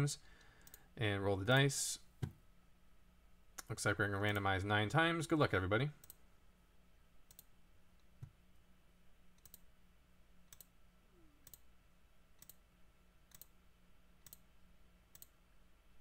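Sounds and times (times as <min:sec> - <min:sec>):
low steady hum: 0:00.0 - 0:16.0
faint computer mouse clicks: 0:00.4 - 0:00.8, 0:15.1 - 0:15.4.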